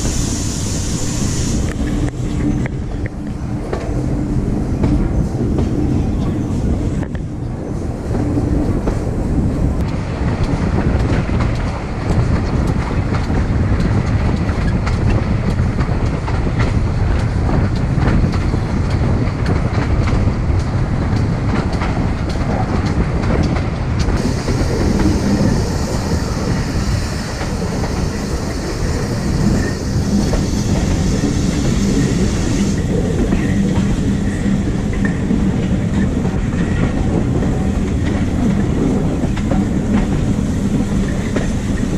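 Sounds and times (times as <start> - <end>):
steam hiss: 0.0 - 2.5, 24.2 - 35.3
train coaches rumbling: 0.0 - 41.9
wheels clicking over rail joints: 9.8 - 41.9.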